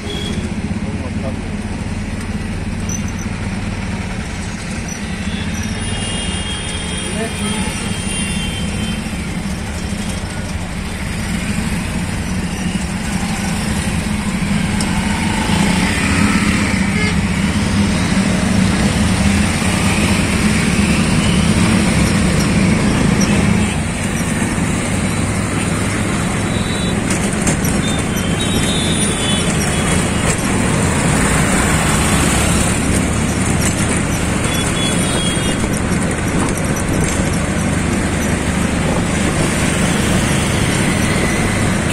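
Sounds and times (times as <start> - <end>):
road and traffic noise: 0.0 - 41.9.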